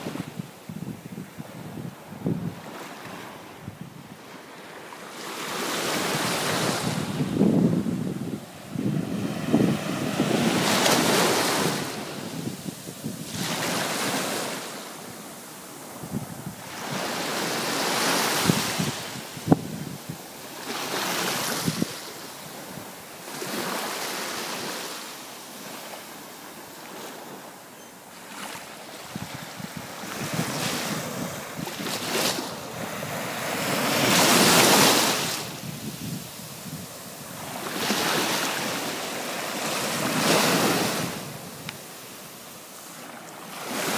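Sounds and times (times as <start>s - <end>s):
wind buffeting microphone: 0.0s - 4.2s, 6.1s - 14.2s, 15.8s - 20.3s, 21.3s - 22.9s, 29.0s - 38.9s
small waves breaking on shore: 0.0s - 43.9s.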